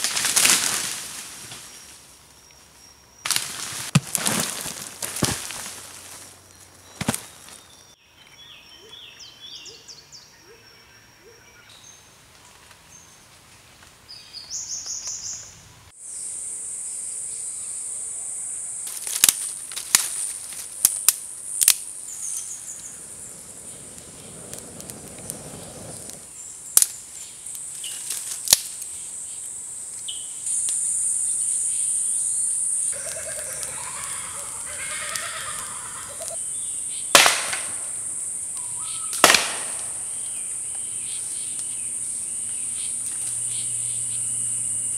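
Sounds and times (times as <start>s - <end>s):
sharp cracks: 0.0s - 1.3s, 18.9s - 21.9s, 23.2s - 28.9s, 37.1s - 38.1s, 39.1s - 40.3s
birds chirping: 4.3s - 12.2s, 22.0s - 28.0s, 31.2s - 44.9s.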